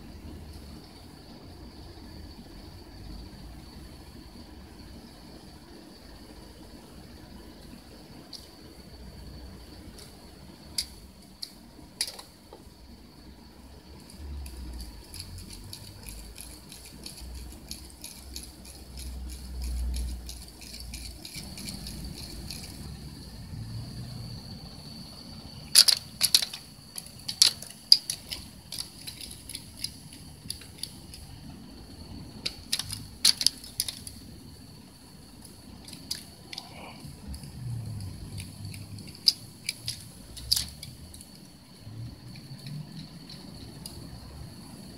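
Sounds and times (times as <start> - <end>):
cat toy clicking and jangling: 14.8 - 22.9.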